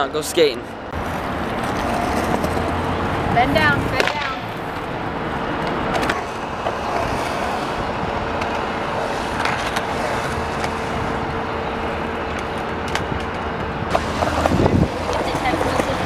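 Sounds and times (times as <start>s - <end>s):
road traffic: 0.0s - 16.0s
skateboard wheels rolling on concrete: 0.0s - 16.0s
skateboard clicks: 4.0s - 4.9s, 5.6s - 10.9s, 12.3s - 16.0s.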